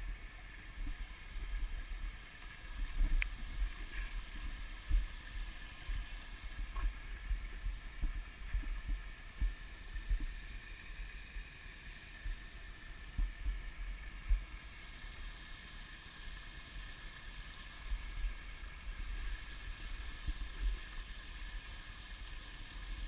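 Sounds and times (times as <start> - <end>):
wind rumble on microphone: 0.0 - 10.5
water trickling from culvert: 0.0 - 23.0.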